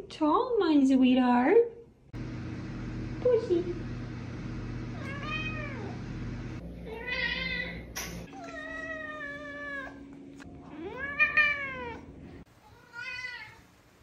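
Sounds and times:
cat meowing: 5.0 - 6.0, 6.8 - 10.0, 10.7 - 13.6.

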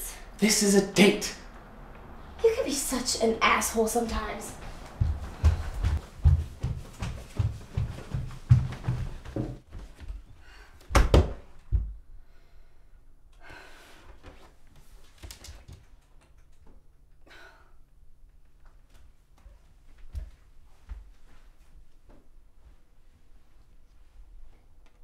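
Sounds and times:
footsteps thudding in a hallway: 4.6 - 10.2.

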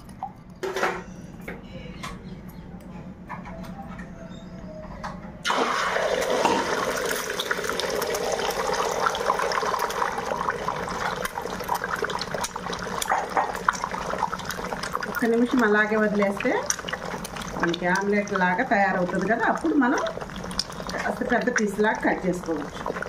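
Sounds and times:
eggs sizzling in hot oil: 5.5 - 23.0.

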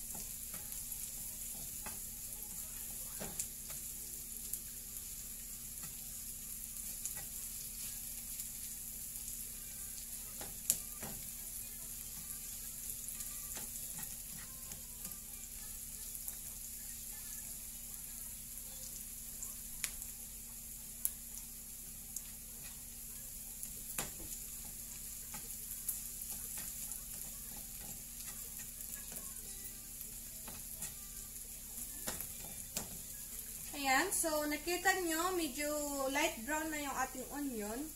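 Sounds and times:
onions sizzling in oil: 0.0 - 37.9
turner clicking against pan: 31.8 - 33.1.

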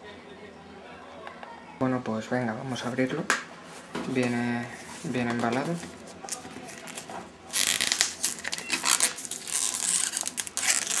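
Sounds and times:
plastic shrink-wrap crinkling: 6.2 - 11.0.

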